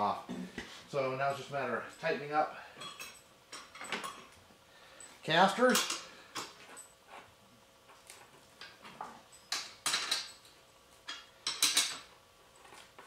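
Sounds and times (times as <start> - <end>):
wrench clinking on metal bolts: 2.8 - 4.3, 5.5 - 6.8, 8.6 - 12.1.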